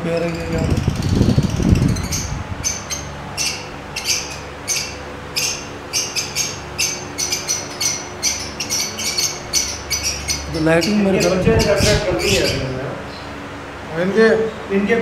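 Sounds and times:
lovebirds chirping: 0:00.0 - 0:13.4.

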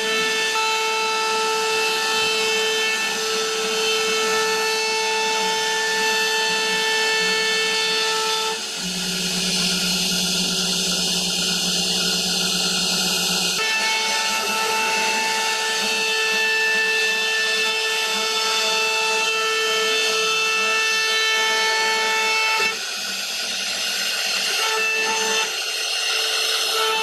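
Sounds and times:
router spindle whining: 0:00.0 - 0:27.0
bit cutting wood hiss: 0:21.8 - 0:27.0.

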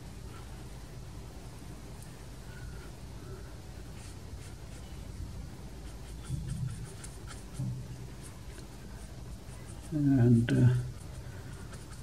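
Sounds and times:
brush dabbing on paper: 0:03.8 - 0:05.1, 0:05.7 - 0:12.0.

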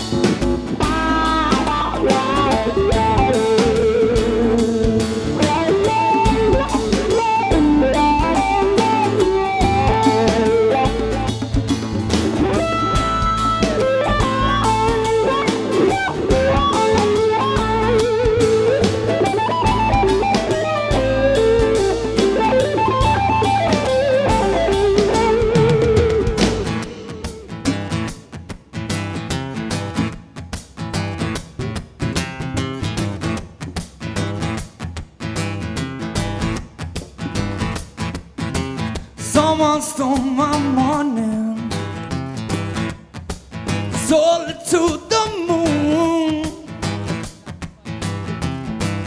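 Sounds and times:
drum kit: 0:00.0 - 0:49.0
electric guitar: 0:00.0 - 0:49.0
strummed acoustic guitar: 0:00.0 - 0:49.0
wavering lead melody: 0:00.8 - 0:27.5.

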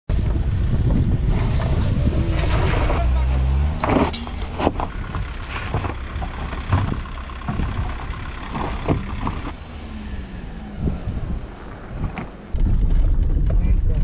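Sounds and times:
car engines under load: 0:00.1 - 0:14.0
tyres crunching on stones: 0:01.4 - 0:09.6.

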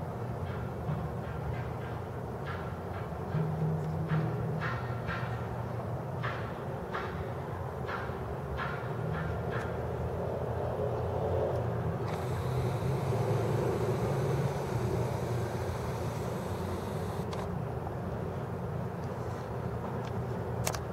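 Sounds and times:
camera lens zoom motor whine: 0:12.0 - 0:17.5
low outdoor background rumble: 0:12.0 - 0:17.5.

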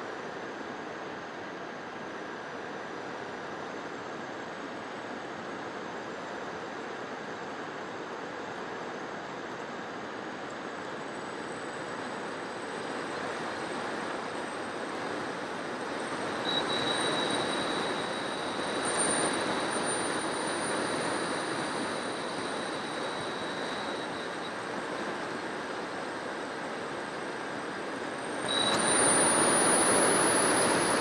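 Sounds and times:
motor and propeller whine: 0:09.8 - 0:31.0.

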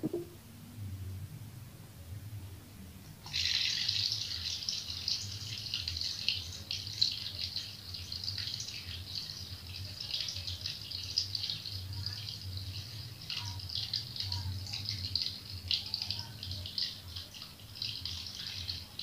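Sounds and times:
low hum: 0:00.0 - 0:03.0.

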